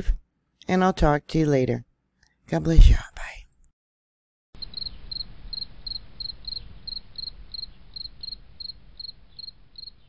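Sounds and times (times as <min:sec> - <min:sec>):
cricket chirping: 0:04.6 - 0:10.0.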